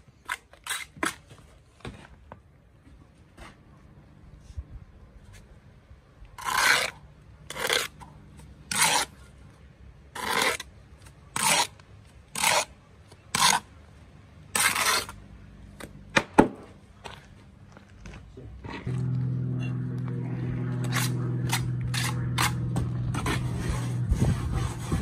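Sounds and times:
trowel scraping mortar: 0:00.2 - 0:01.4, 0:06.4 - 0:09.3, 0:10.1 - 0:13.7, 0:14.5 - 0:15.2, 0:20.7 - 0:25.0.

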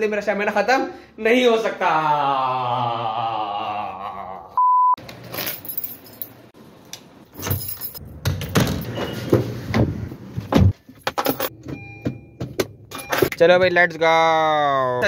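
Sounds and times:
keys jangling: 0:05.2 - 0:06.4, 0:07.4 - 0:08.8, 0:10.9 - 0:11.5.

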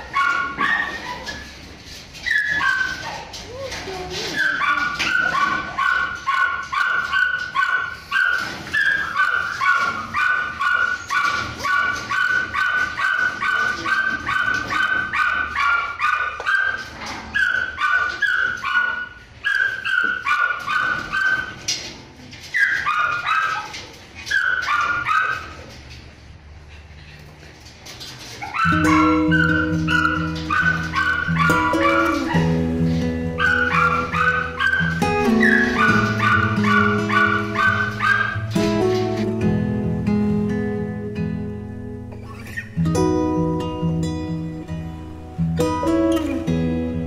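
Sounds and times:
high-pitched dog barking: 0:00.0 - 0:01.4, 0:02.3 - 0:03.4, 0:04.3 - 0:21.6, 0:22.6 - 0:25.6, 0:28.4 - 0:38.7.

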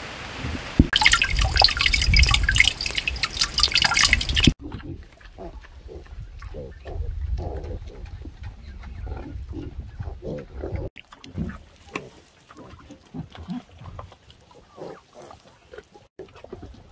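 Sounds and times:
water splashing on metal grate: 0:00.7 - 0:04.8.

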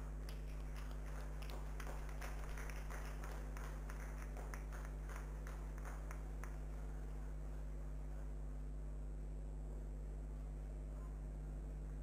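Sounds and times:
audience clapping: 0:00.0 - 0:07.0
electrical hum: 0:00.0 - 0:12.0.

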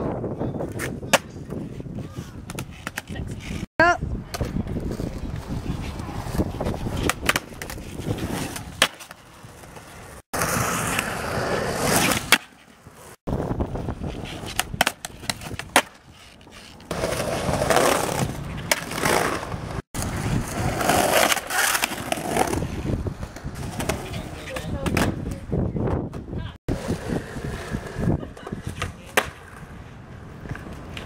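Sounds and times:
skateboard wheels rolling on concrete: 0:00.0 - 0:31.0
skateboard scraping on ledge: 0:04.7 - 0:25.2
skateboard clacking: 0:06.2 - 0:10.0, 0:14.4 - 0:19.4, 0:26.8 - 0:29.7.

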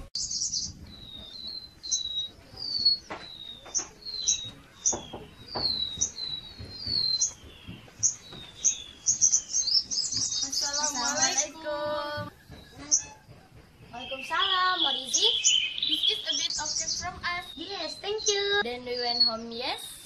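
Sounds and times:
small birds chirping: 0:00.0 - 0:20.0
soft knocks: 0:02.3 - 0:09.0, 0:09.8 - 0:14.2.

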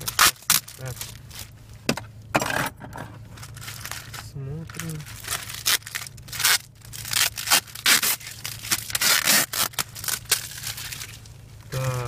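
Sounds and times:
plastic mailer ripping: 0:00.0 - 0:01.4, 0:04.7 - 0:12.0.

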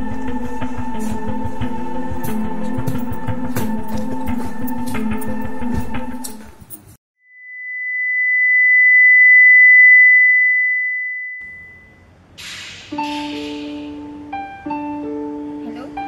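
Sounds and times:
background music: 0:00.0 - 0:06.7, 0:12.4 - 0:16.0
high-pitched electronic tone: 0:07.2 - 0:12.1.

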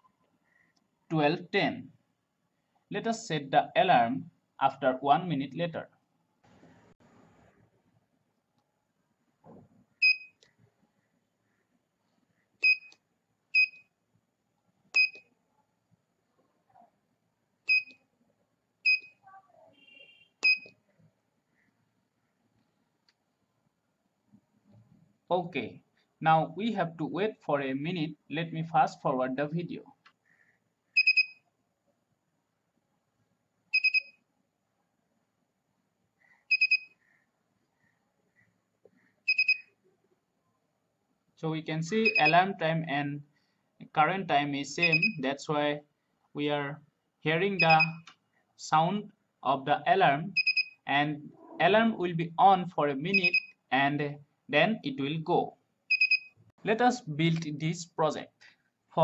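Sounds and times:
buzzer short beeps: 0:36.5 - 0:37.0, 0:47.6 - 0:48.0, 0:50.4 - 0:50.8, 0:55.9 - 0:56.4.

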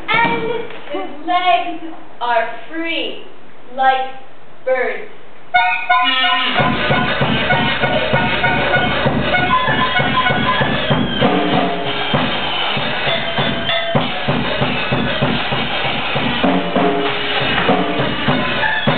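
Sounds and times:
drums keeping a steady beat: 0:00.0 - 0:00.8, 0:05.5 - 0:18.9
held melody notes: 0:05.5 - 0:18.9.

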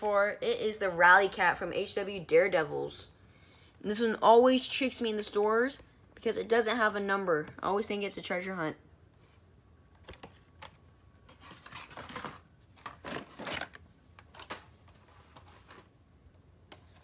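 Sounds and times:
card and plastic rustling: 0:10.0 - 0:16.0.

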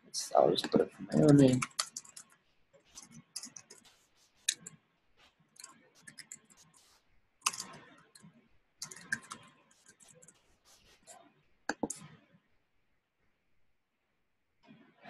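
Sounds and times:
computer keyboard typing: 0:00.6 - 0:04.7, 0:05.6 - 0:08.2, 0:08.8 - 0:12.0.

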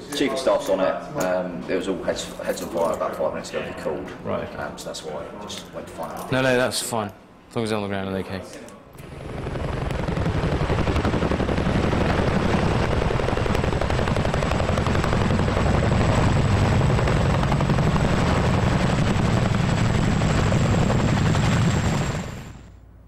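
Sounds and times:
helicopter rotors chopping: 0:09.0 - 0:22.7.

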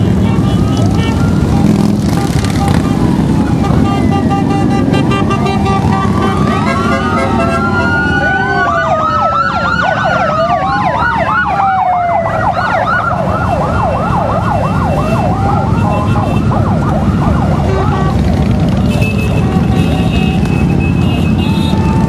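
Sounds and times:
motorcycles rumbling past: 0:00.0 - 0:22.0
siren wailing: 0:00.8 - 0:04.4, 0:05.3 - 0:18.8, 0:20.7 - 0:22.0
siren yelping: 0:05.0 - 0:18.8, 0:20.7 - 0:22.0.

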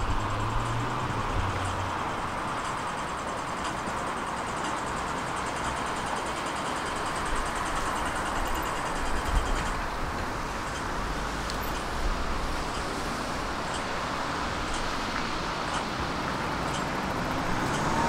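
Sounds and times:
vehicle passing rumble: 0:00.0 - 0:03.2, 0:09.8 - 0:18.0
road traffic hum: 0:00.0 - 0:18.0.

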